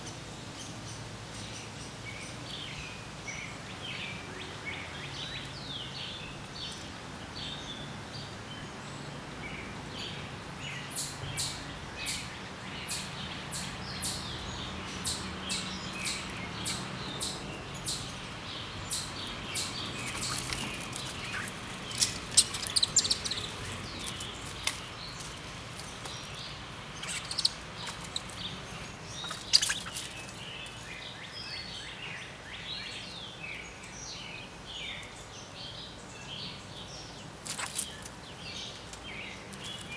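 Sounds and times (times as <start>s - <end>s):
faint bird twittering: 10.7s - 25.3s, 26.2s - 34.3s.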